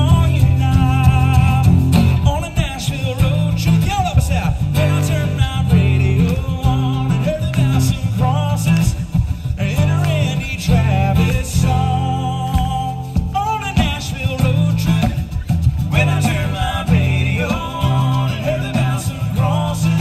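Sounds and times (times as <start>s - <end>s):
man singing with vibrato: 0.0s - 20.0s
strummed acoustic guitars: 0.0s - 20.0s.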